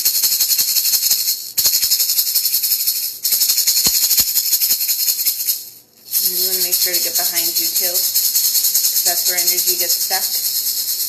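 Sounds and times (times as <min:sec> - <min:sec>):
maracas rattling: 0:00.0 - 0:11.0.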